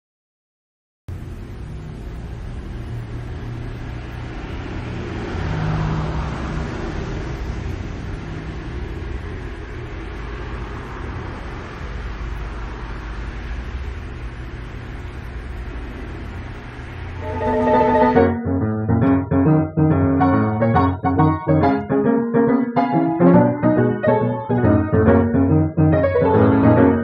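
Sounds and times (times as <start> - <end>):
street traffic rumbling: 1.1 - 18.7
vehicle passing: 4.4 - 9.4.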